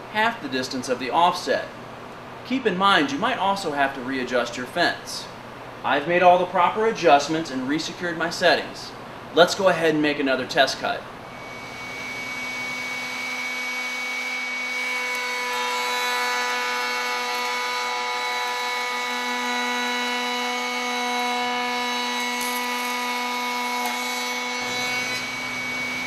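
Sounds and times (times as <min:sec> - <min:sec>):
router whining cutting wood: 0:11.3 - 0:26.0.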